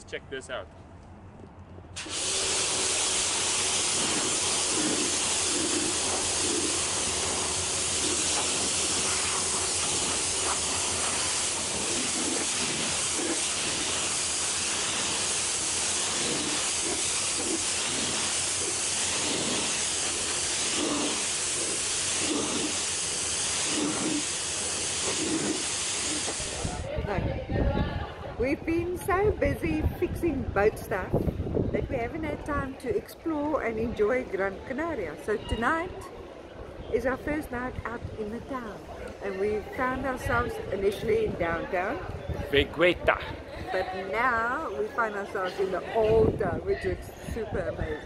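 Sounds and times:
hose spraying water on deck: 2.0 - 26.9.

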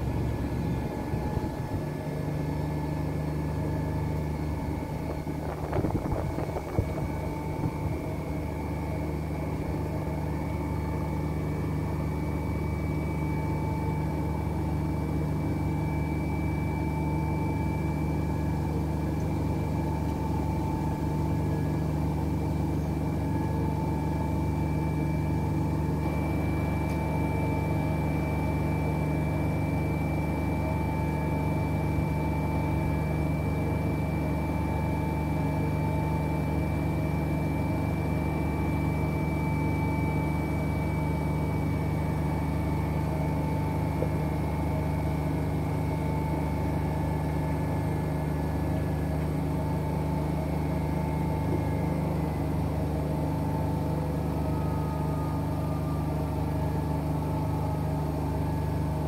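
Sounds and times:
washing machines motor hum: 0.0 - 59.0
high whine: 3.4 - 35.0.

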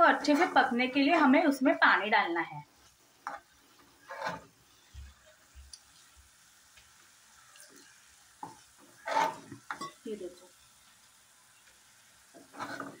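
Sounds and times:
ladle scraping a steel pan: 4.0 - 4.4, 9.0 - 9.9, 12.5 - 13.0.

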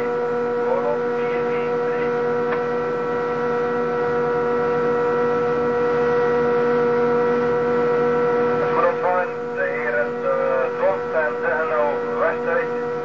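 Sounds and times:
ship machinery humming: 0.0 - 13.0.

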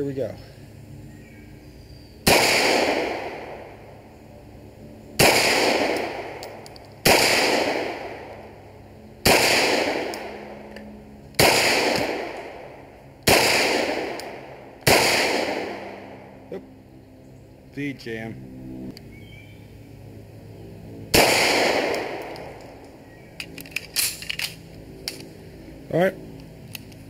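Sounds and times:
pistol shots with echo: 2.2 - 3.8, 5.2 - 8.4, 9.2 - 10.5, 11.4 - 16.2, 21.1 - 22.5.

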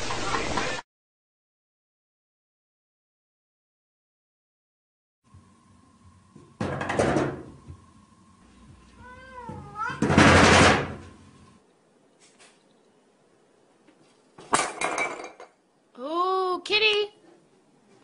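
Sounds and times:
cat meowing: 9.0 - 10.1
sliding door rattling in frame: 10.0 - 11.0.

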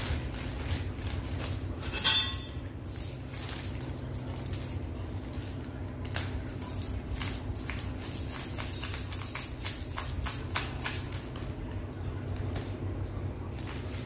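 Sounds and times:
metal brackets and packing handled: 0.0 - 11.6
steady low hum: 0.0 - 14.0
sharp metal clink: 1.9 - 5.6.

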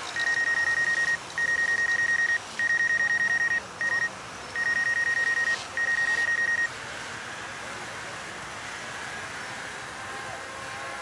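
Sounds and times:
rapid electronic warning beeps: 0.0 - 6.7.

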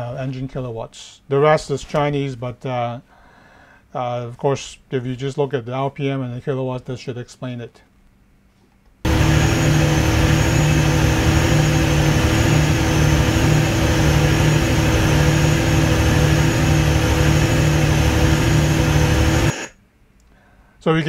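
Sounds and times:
generator engine hunting: 9.1 - 19.7.

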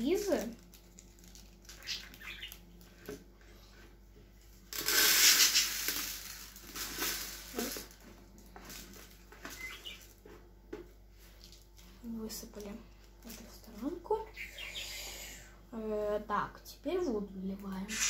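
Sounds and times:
plastic packet crinkling: 0.0 - 3.1, 4.7 - 10.2
beads pouring onto plastic: 4.7 - 10.0.

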